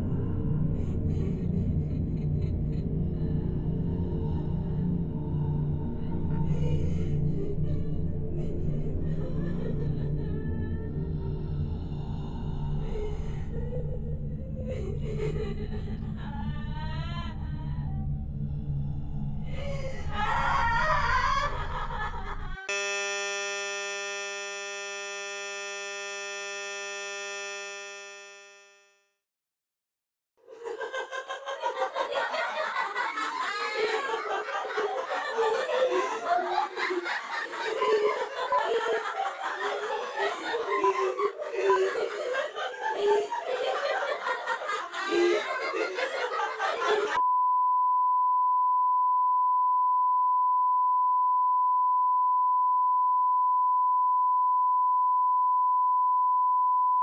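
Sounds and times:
many people laughing: 0.0 - 4.7, 6.1 - 11.0, 12.8 - 18.0, 19.5 - 22.7, 30.4 - 47.2
steady test tone: 22.7 - 28.9.

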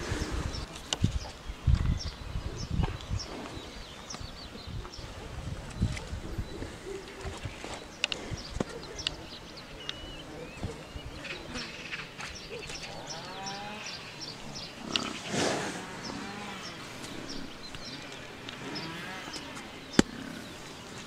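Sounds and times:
buffalo cropping grass: 14.8 - 21.0.

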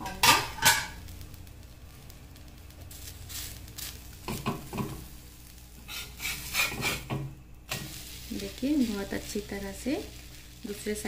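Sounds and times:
hot oil sizzling: 0.0 - 11.0
metal spatula scraping griddle: 5.8 - 9.0.

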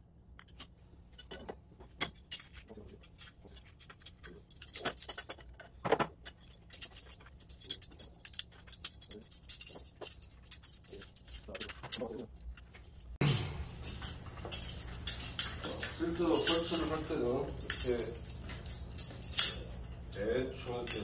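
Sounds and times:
metal tubes and chain clinking: 0.4 - 21.0
loud metallic clank: 13.2 - 14.0.

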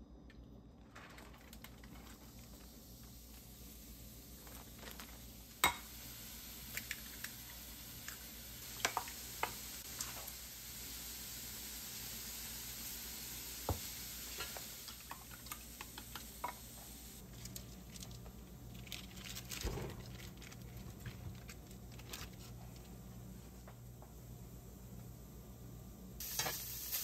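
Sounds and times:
food sizzling in a pan: 2.0 - 17.2, 26.2 - 27.0.

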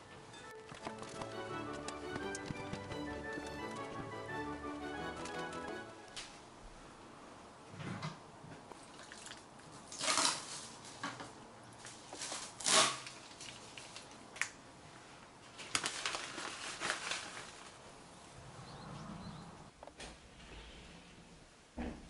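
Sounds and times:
plastic packets crinkling: 15.5 - 17.8.

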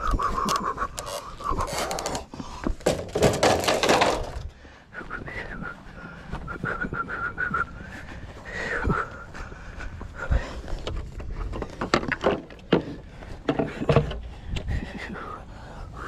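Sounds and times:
railing knocking and scraping: 2.8 - 4.4.

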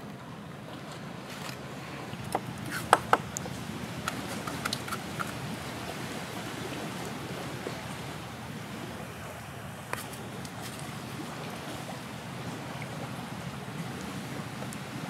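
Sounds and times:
surf on beach: 0.0 - 15.0
wind: 0.0 - 15.0
sharp clicks and taps: 2.3 - 5.3.

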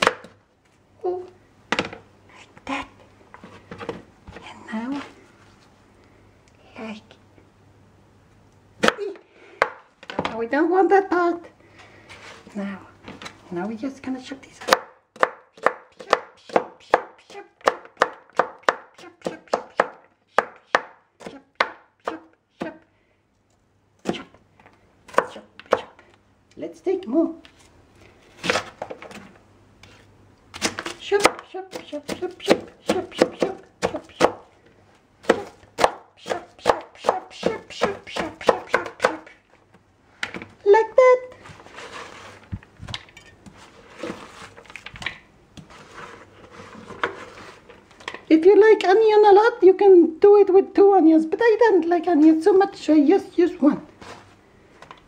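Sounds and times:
vegetables rustling and scraping: 3.3 - 5.8, 11.7 - 13.8, 27.4 - 31.1, 41.2 - 48.3, 53.8 - 54.9
knife chopping on plastic board: 14.7 - 22.8, 30.6 - 34.4, 35.2 - 39.3.

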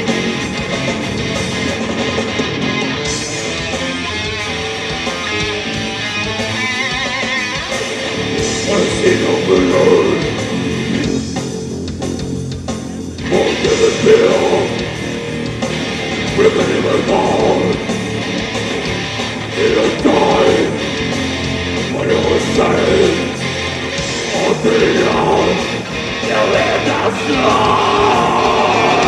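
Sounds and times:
distorted electric guitars: 0.0 - 29.0
drum kit: 0.0 - 29.0
person singing into microphone: 16.4 - 17.8, 19.6 - 20.7, 21.9 - 23.3, 24.3 - 25.6, 26.3 - 29.0.

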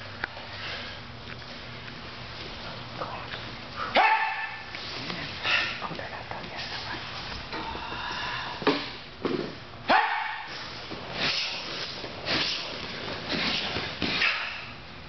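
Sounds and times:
person shouting: 3.9 - 4.6, 9.9 - 10.5
uniforms snapping and feet thudding: 8.6 - 14.8.

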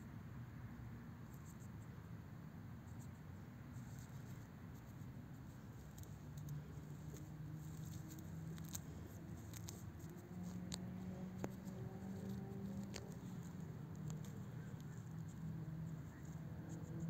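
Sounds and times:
rustling in dry grass: 3.7 - 16.7.

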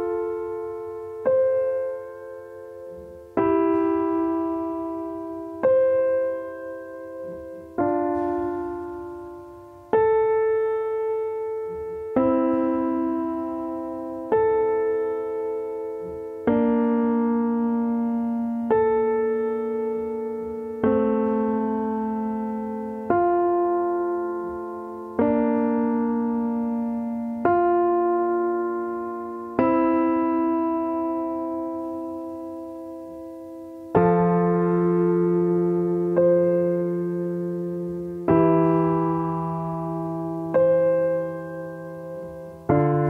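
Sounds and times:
slow solo piano chords: 0.0 - 43.0.

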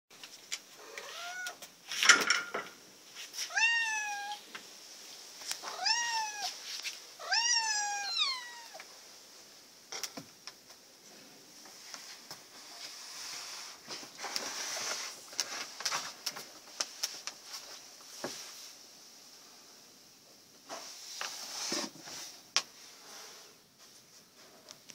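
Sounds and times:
cat meowing: 0.8 - 1.6, 3.5 - 4.4, 5.6 - 6.6, 7.2 - 8.8
soft rustling: 4.6 - 8.0, 10.6 - 19.8.

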